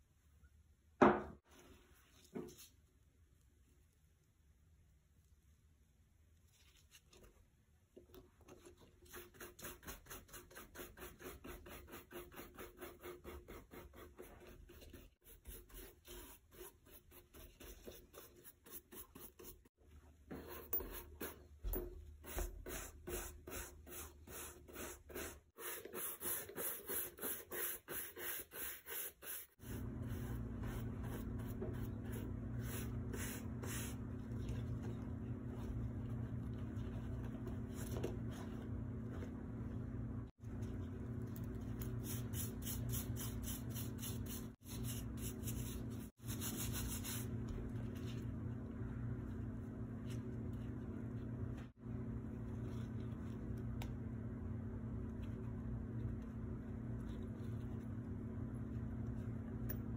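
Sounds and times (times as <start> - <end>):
low hum: 29.6 - 59.9.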